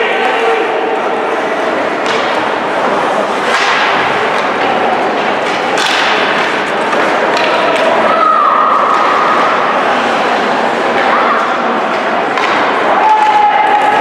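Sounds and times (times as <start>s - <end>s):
crowd and rink din: 0.0s - 14.0s
hockey sticks cracking puck: 1.9s - 9.6s, 11.8s - 14.0s.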